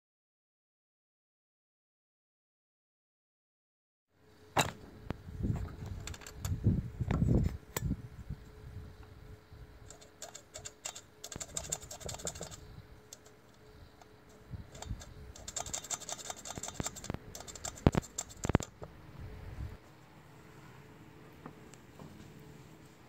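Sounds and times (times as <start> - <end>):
small metal parts clicking: 5.8 - 6.6, 9.9 - 18.8.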